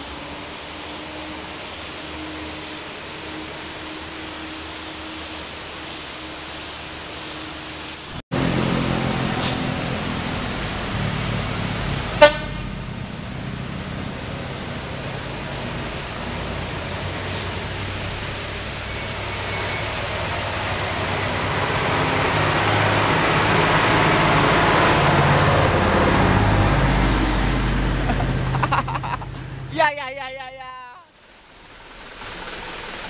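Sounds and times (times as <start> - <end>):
car engine and tyre noise: 0.0 - 29.8, 31.1 - 33.0
truck engines droning: 0.0 - 33.0
short loud horn toot: 12.2 - 12.8.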